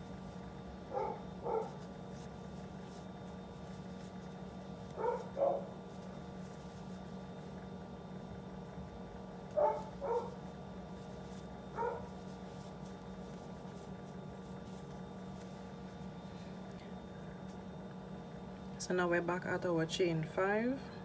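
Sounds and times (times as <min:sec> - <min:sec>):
dog barking: 0:00.9 - 0:01.8, 0:05.0 - 0:05.7, 0:09.6 - 0:10.4, 0:11.8 - 0:12.1.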